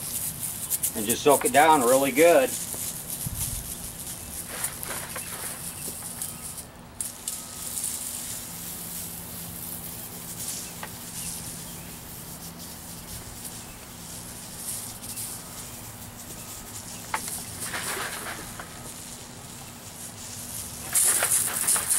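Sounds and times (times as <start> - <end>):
sprayer hissing water spray: 0.0 - 21.9.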